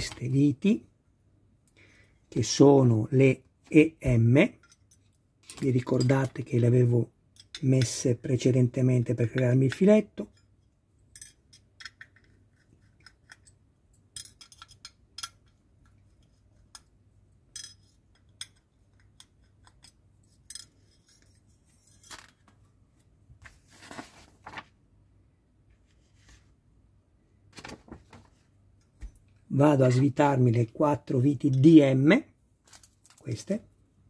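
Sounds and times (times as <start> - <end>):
small metallic clinks: 4.6 - 6.1
screwdriver clicking and scraping: 17.7 - 22.0.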